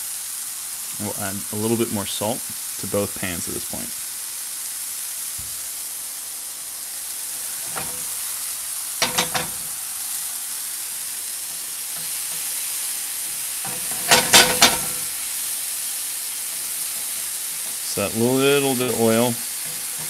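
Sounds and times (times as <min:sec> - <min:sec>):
mushrooms sizzling in frying pan: 0:00.0 - 0:20.0
chopsticks clicking on pan: 0:09.0 - 0:09.7.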